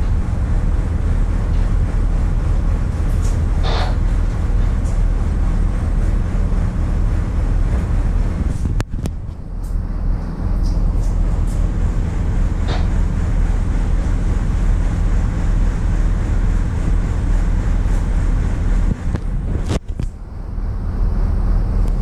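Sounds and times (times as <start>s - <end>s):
ship diesel engines droning: 0.0s - 22.0s
wind on microphone: 7.0s - 9.4s, 16.7s - 20.1s.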